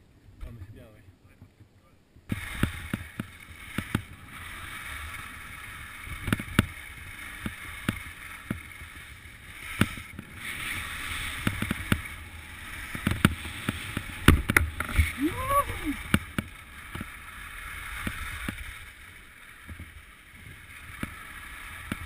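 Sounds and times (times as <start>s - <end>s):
skis sliding over snow: 2.3s - 22.0s.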